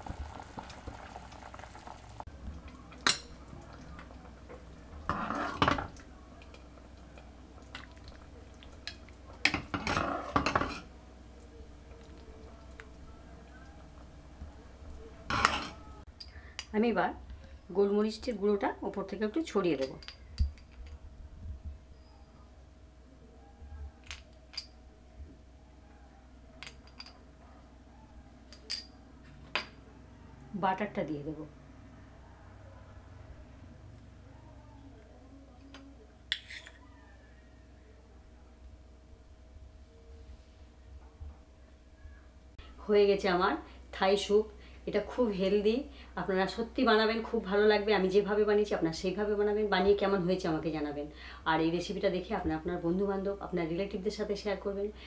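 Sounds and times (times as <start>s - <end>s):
soup pouring: 0.0s - 2.2s
faint steady hum: 0.0s - 55.0s.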